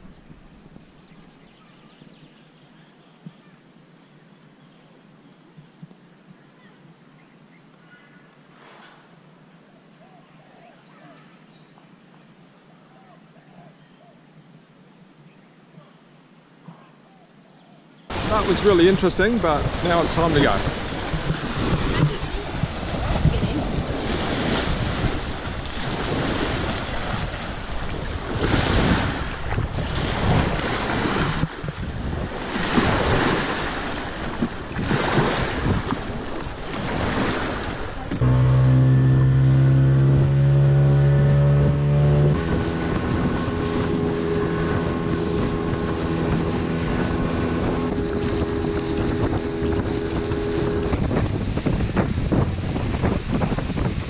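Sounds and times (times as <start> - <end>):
small waves washing on shore: 18.1 - 38.4
outboard motor running: 18.1 - 53.4
wind buffeting microphone: 18.1 - 54.0.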